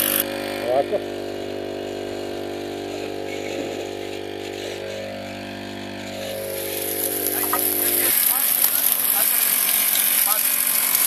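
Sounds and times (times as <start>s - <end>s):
quad engine running: 0.0s - 11.0s
water jet hissing: 6.0s - 11.0s.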